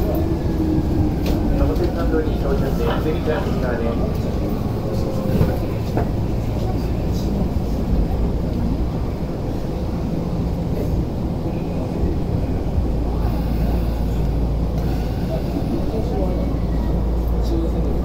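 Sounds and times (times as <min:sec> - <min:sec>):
train motor and wheel rumble: 0:00.0 - 0:18.0.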